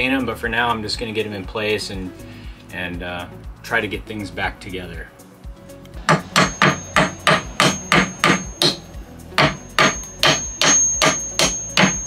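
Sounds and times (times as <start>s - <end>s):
hammer tapping nail into wood: 6.1s - 8.8s, 9.4s - 12.0s.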